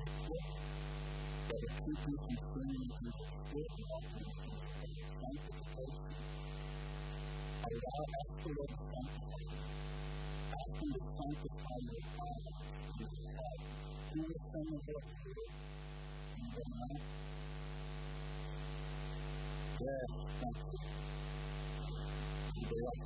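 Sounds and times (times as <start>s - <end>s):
faint voice: 0.0s - 0.5s, 1.5s - 6.2s, 7.6s - 9.5s, 10.6s - 15.5s, 16.4s - 17.0s, 19.8s - 21.0s, 22.5s - 23.0s
electrical hum: 0.0s - 23.0s.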